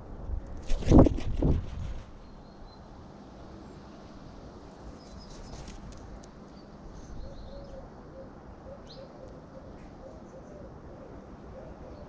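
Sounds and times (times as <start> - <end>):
small birds chirping: 4.9 - 7.9
pigeon cooing: 7.3 - 12.0.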